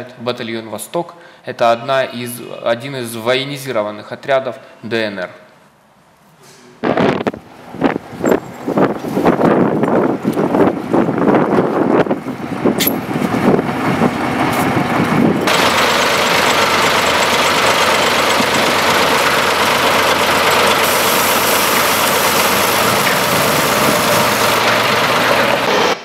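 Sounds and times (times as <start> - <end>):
wind buffeting microphone: 6.8 - 15.6
heavy vehicle engines running: 7.4 - 26.0.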